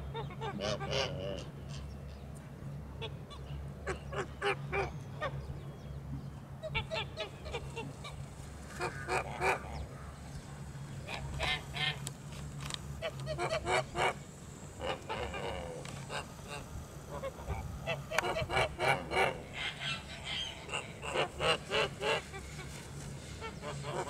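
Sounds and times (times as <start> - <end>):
geese honking: 0.1 - 1.9, 6.6 - 10.2, 11.0 - 12.1, 13.0 - 24.0.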